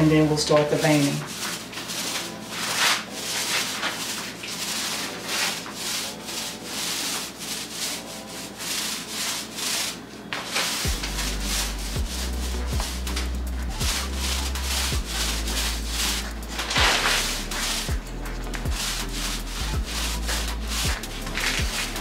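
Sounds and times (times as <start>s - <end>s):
foam roller rubbing wet coating: 0.0s - 22.0s
steady low hum: 10.8s - 22.0s.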